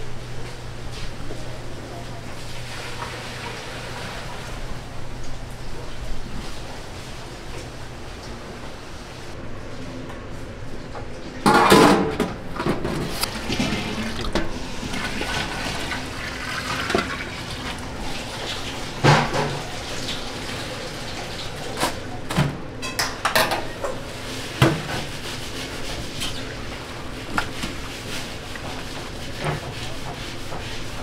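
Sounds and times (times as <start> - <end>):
water running and splashing: 13.3 - 22.0.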